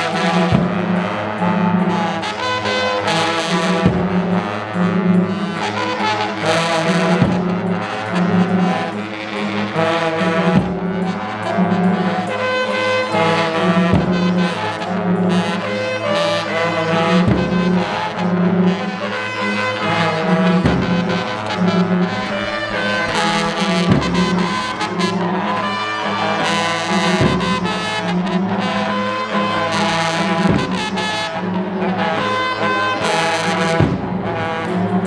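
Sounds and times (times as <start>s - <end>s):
long brass horns blowing: 0.0s - 35.0s.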